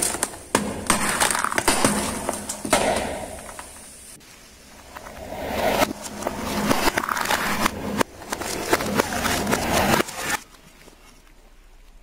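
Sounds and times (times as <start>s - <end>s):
cans crushed under car tyre: 0.0s - 3.8s, 6.0s - 10.4s.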